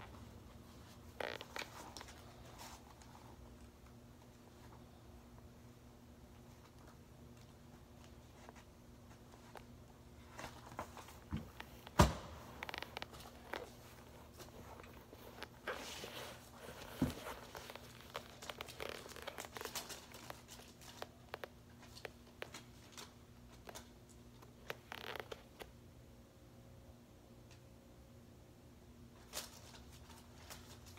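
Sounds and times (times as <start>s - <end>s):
foot rustling inside sneaker: 0.0s - 5.1s, 6.4s - 23.8s, 24.4s - 25.7s
shoe scuffing on hard floor: 10.4s - 18.2s.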